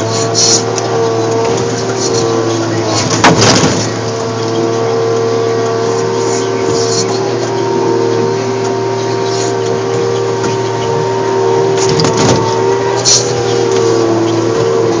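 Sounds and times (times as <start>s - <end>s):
diesel engine and hydraulics whining: 0.0s - 15.0s
knocks and clatters: 2.9s - 4.1s.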